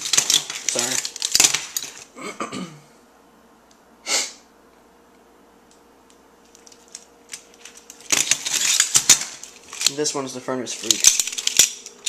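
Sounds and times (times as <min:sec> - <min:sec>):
person sneezing or snorting: 0:02.2 - 0:02.9, 0:04.0 - 0:04.5.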